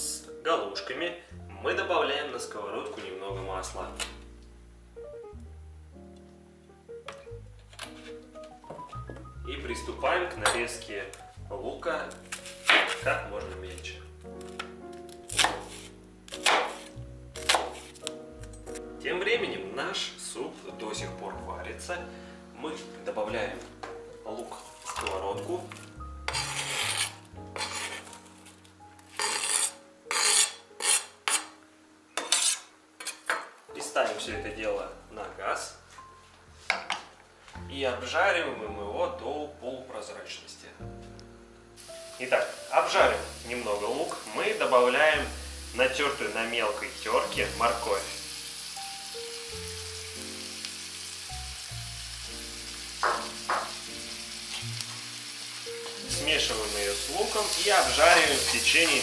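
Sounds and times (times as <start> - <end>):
soft background music: 0.0 - 59.0
knife scraping cutting board: 26.3 - 28.5, 29.1 - 31.5, 32.2 - 33.2
vegetables sizzling in frying pan: 41.8 - 59.0.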